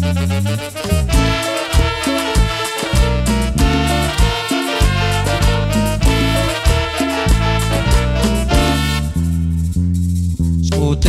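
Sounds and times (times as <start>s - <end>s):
trumpets: 0.0s - 9.6s
live latin band playing: 0.0s - 10.0s
drum hits: 1.1s - 9.0s.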